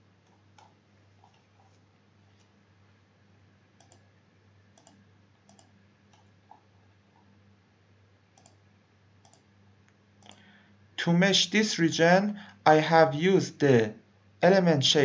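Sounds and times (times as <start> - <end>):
low steady hum: 0.0 - 15.0
computer mouse clicks: 3.8 - 4.1, 4.8 - 7.3, 8.4 - 8.6, 9.2 - 9.5, 10.2 - 10.5.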